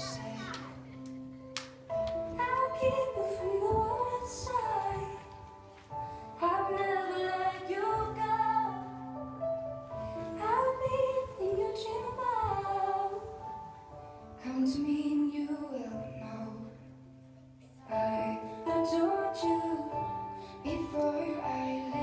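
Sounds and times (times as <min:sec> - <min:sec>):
woman singing: 0:00.0 - 0:00.9, 0:02.3 - 0:05.5, 0:06.4 - 0:09.0, 0:10.4 - 0:13.5, 0:14.4 - 0:16.9, 0:17.8 - 0:22.0.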